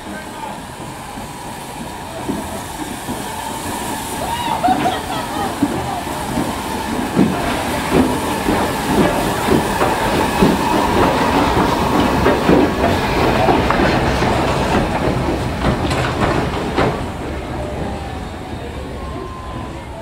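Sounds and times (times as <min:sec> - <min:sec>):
steam hiss: 0:00.0 - 0:20.0
steam locomotive chuffing: 0:00.0 - 0:20.0
wheel clatter: 0:04.6 - 0:20.0.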